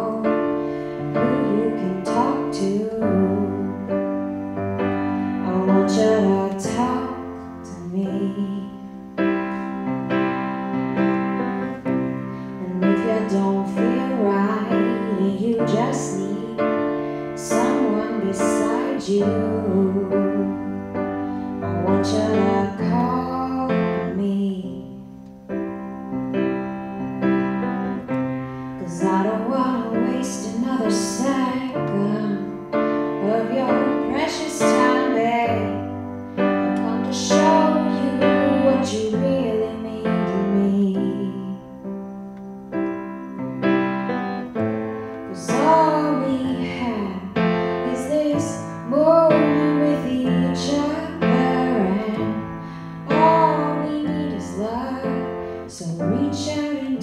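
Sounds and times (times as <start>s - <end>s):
woman singing: 0.0s - 9.3s, 12.6s - 25.1s, 28.8s - 41.8s, 45.3s - 57.0s
grand piano accompaniment: 0.0s - 57.0s.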